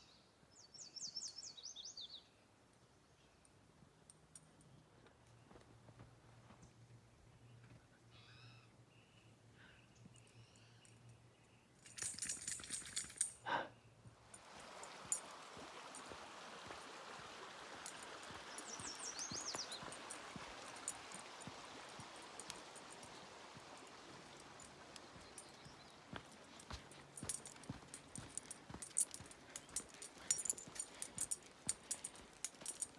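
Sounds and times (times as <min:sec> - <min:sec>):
small jingling clicks: 0:10.1 - 0:13.5, 0:14.3 - 0:16.2, 0:17.7 - 0:32.9
creek water rushing: 0:14.2 - 0:32.9.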